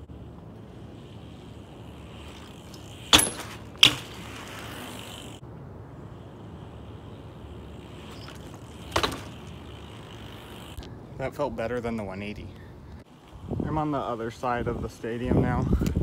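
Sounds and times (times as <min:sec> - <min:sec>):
bike tyres rolling: 0:00.0 - 0:16.0
bike landing impacts on pavement: 0:01.0 - 0:05.4, 0:07.4 - 0:10.8.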